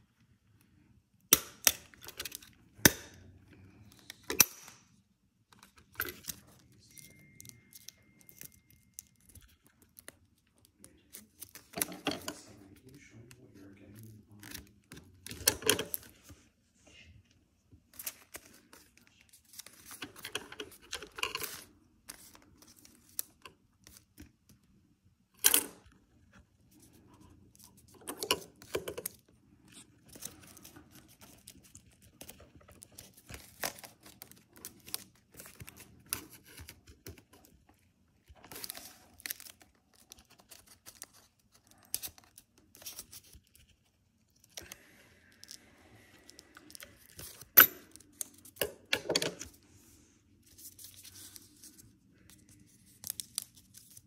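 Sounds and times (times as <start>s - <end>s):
paper rustling: 17.9s - 24.2s, 26.7s - 45.6s, 50.4s - 54.0s.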